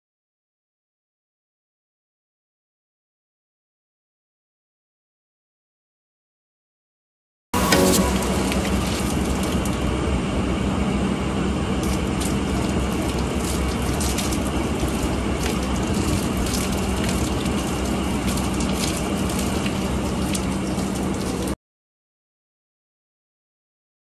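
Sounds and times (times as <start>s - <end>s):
water pouring and splashing on roof: 7.6s - 9.9s, 11.7s - 21.6s
low hum: 7.6s - 13.4s.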